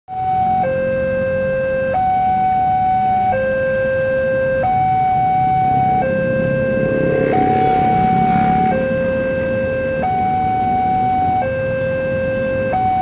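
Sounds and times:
idling vehicle engines rumbling: 0:00.1 - 0:13.0
two-tone electronic crossing alarm: 0:00.1 - 0:13.0.

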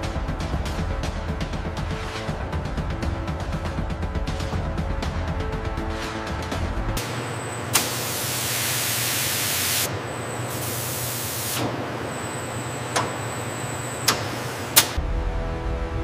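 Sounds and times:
sharp clicks: 0:14.0 - 0:15.0.

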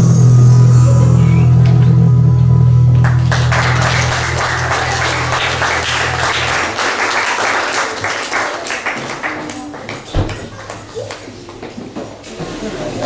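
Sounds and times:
music low sustained note: 0:00.0 - 0:07.1
crowd applauding: 0:02.9 - 0:11.2.

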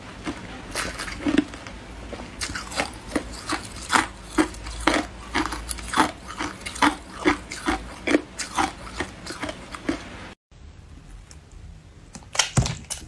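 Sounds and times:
ice crunching between teeth: 0:00.2 - 0:01.6, 0:02.4 - 0:10.0.

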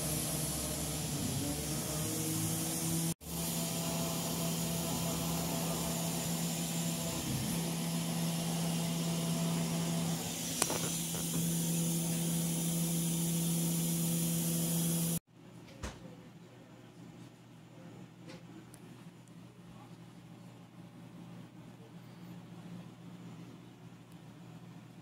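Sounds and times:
air hissing from laser cutter: 0:00.0 - 0:15.2.

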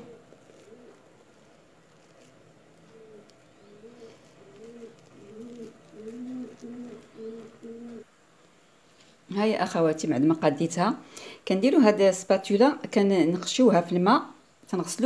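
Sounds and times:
dove cooing: 0:00.0 - 0:08.1.

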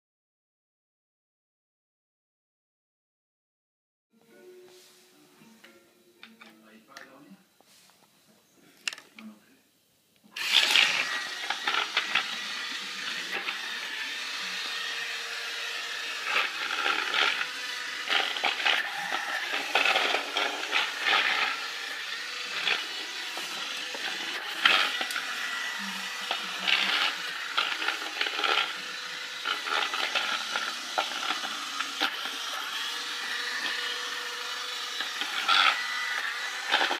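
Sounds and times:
electric motors whirring: 0:10.3 - 0:36.9.

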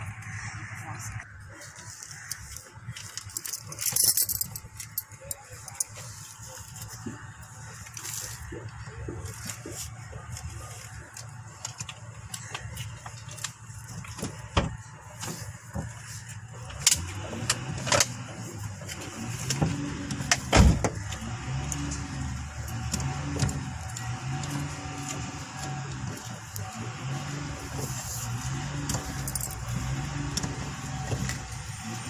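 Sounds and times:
car engine idling and revving: 0:00.0 - 0:32.0
engine clicks and knocks: 0:11.1 - 0:32.0.

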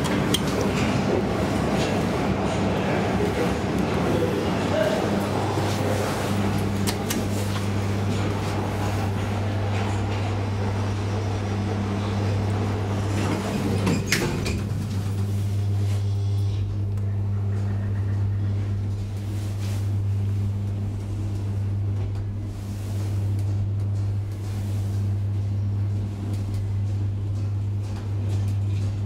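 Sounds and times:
elevator doors sliding shut: 0:00.0 - 0:15.4
low elevator hum: 0:00.0 - 0:29.0.

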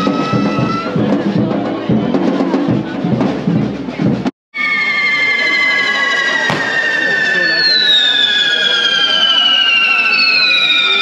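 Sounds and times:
drums beating fast rhythm: 0:00.0 - 0:04.3
crowd noise: 0:00.0 - 0:11.0
fireworks whistling: 0:04.6 - 0:11.0.

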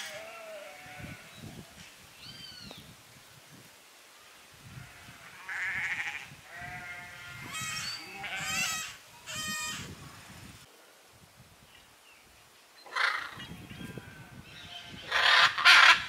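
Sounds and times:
sheep bleating: 0:00.0 - 0:01.3, 0:04.8 - 0:09.9.

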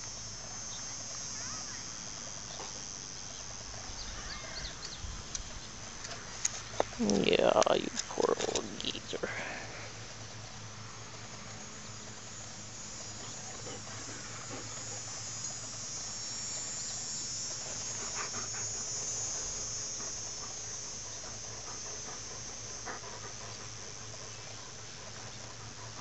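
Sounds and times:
insects buzzing in grass: 0:00.0 - 0:26.0.

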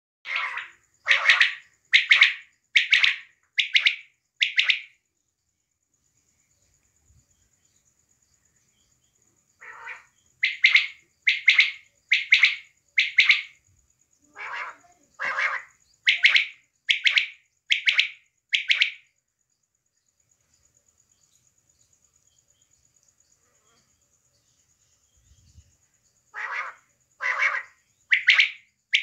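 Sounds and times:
quail calling: 0:00.3 - 0:04.9, 0:09.6 - 0:13.6, 0:14.3 - 0:19.0, 0:26.3 - 0:29.0.

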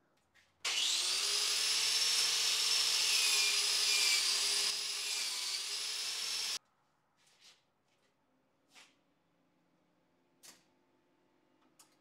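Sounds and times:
angle grinder whining: 0:00.7 - 0:06.6.

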